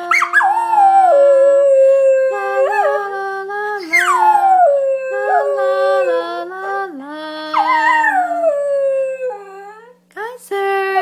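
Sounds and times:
dog howling: 0:00.1 - 0:03.1, 0:03.8 - 0:06.4, 0:07.5 - 0:09.8.

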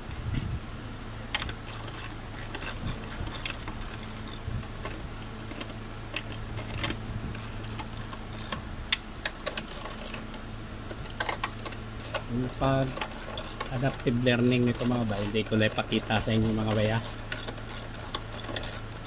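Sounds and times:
steady low hum: 0:00.0 - 0:19.0
ratchet wrench clicking: 0:01.4 - 0:04.5, 0:07.4 - 0:08.6, 0:09.2 - 0:10.2, 0:11.2 - 0:19.0.

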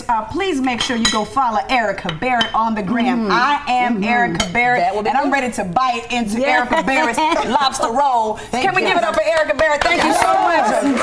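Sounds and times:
clinking plates and cutlery: 0:00.8 - 0:01.3.

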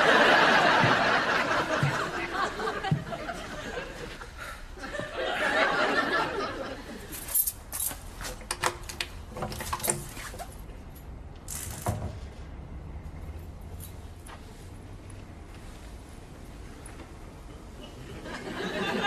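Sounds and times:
studio audience laughing: 0:00.0 - 0:07.1, 0:17.8 - 0:19.0.

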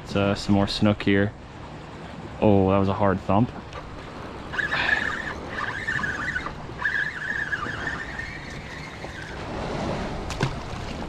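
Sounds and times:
fishing reel whirring: 0:03.8 - 0:09.5.

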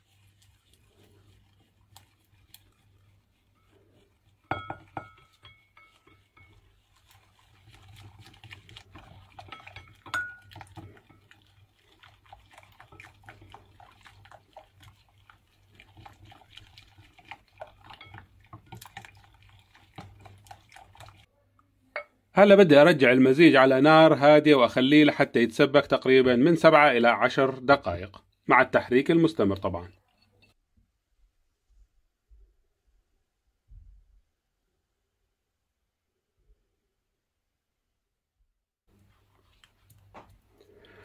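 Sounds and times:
whisk ticking and scraping glass bowl: 0:00.0 - 0:21.3, 0:22.8 - 0:30.6.

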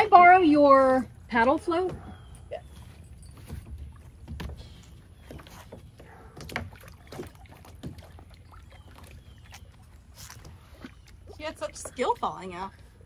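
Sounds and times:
paddle knocking on kayak: 0:03.4 - 0:08.3
small water splashes: 0:03.4 - 0:12.6.

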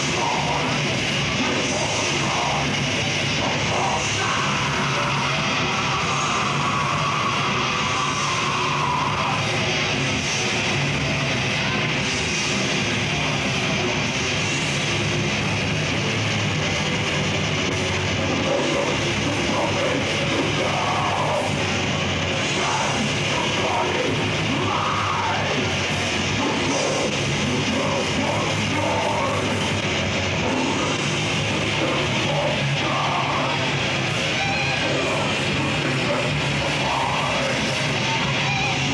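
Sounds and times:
distorted electric guitars: 0:00.0 - 0:38.9
drums: 0:00.0 - 0:38.9
shouted vocals: 0:03.4 - 0:09.9, 0:22.4 - 0:29.6, 0:31.6 - 0:38.9.

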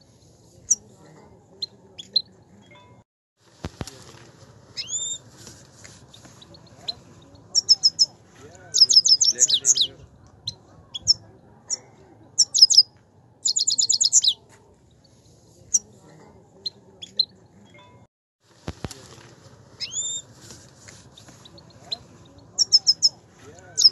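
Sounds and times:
bird whistle: 0:04.8 - 0:05.2, 0:08.8 - 0:09.9, 0:12.4 - 0:12.9, 0:13.5 - 0:14.4, 0:19.8 - 0:20.3, 0:22.6 - 0:23.2
bird twittering and chirping: 0:04.8 - 0:05.3, 0:06.1 - 0:11.8, 0:12.4 - 0:14.4, 0:19.8 - 0:20.3, 0:21.1 - 0:23.9.

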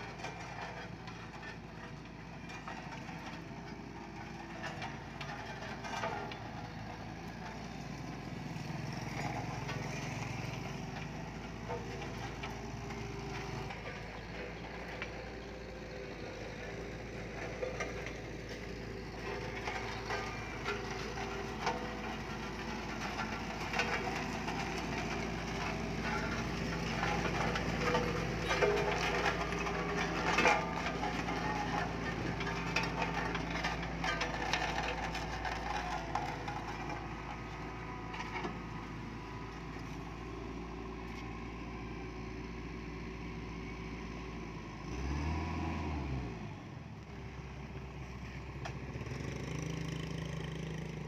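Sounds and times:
road roller diesel engine: 0:00.0 - 0:51.0.

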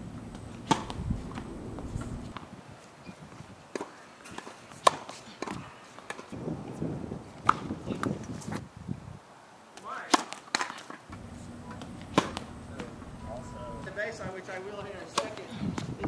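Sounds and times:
tennis racket hitting ball: 0:00.6 - 0:02.0, 0:10.1 - 0:13.0, 0:15.0 - 0:15.5.

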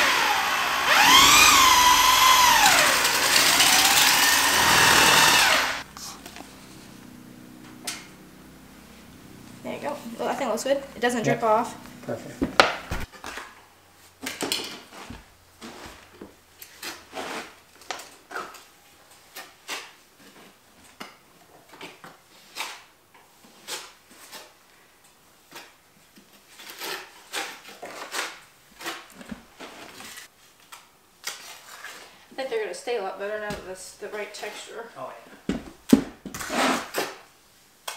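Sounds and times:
trowel scraping mortar: 0:16.7 - 0:17.6.

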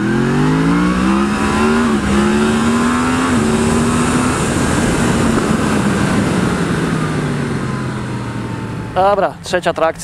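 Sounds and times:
motorcycle engine accelerating: 0:00.0 - 0:09.4
wind noise rushing: 0:01.1 - 0:07.5.

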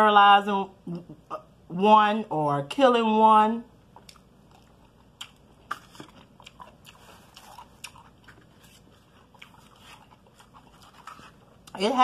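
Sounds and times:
chewing crunches: 0:03.9 - 0:11.8.

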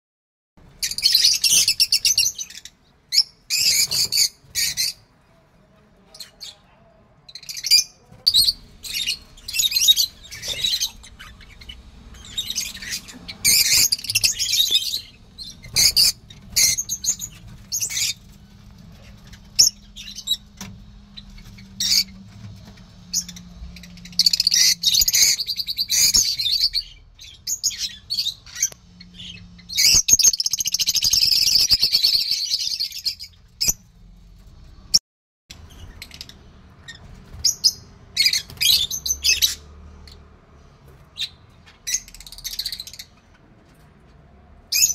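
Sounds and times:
lovebirds chattering: 0:05.7 - 0:22.4, 0:23.1 - 0:33.8.

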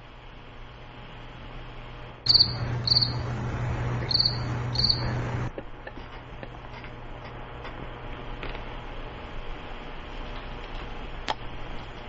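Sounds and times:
cricket chirps: 0:02.3 - 0:03.3, 0:04.0 - 0:05.2.

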